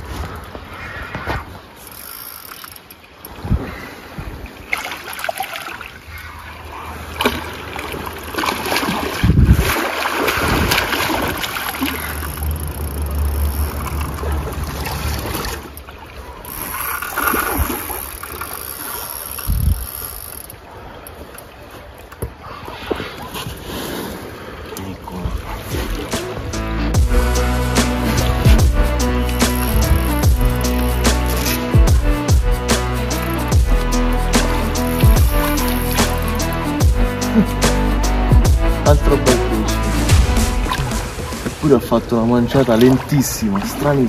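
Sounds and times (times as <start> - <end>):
fishing reel and rod handling: 1.8 - 3.4, 11.9 - 21.5, 29.1 - 31.8, 33.0 - 36.6
wind buffeting microphone: 9.0 - 11.6, 19.4 - 19.9.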